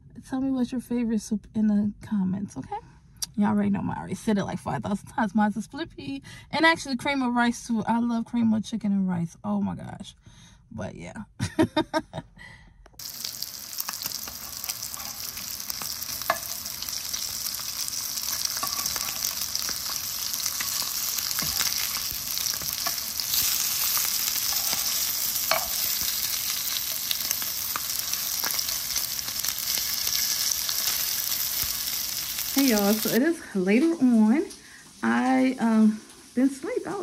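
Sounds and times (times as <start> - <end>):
sausages sizzling in a frying pan: 13.0 - 37.0
metal spatula clicking on pan: 13.8 - 17.7, 24.4 - 28.8.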